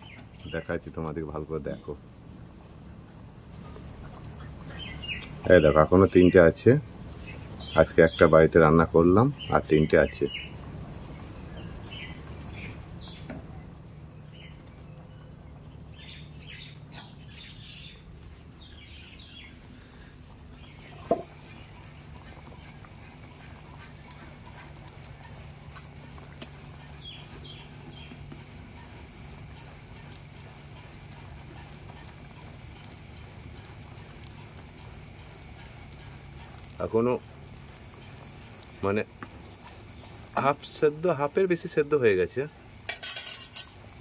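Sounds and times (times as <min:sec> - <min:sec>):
low steady hum: 0:00.0 - 0:44.0
small birds chirping: 0:00.0 - 0:44.0
wood fire crackling: 0:00.0 - 0:44.0
curry simmering in a pan: 0:18.4 - 0:40.8.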